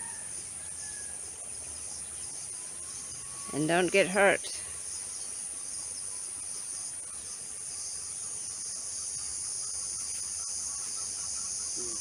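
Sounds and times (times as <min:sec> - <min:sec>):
insects shrilling: 0:00.0 - 0:12.0.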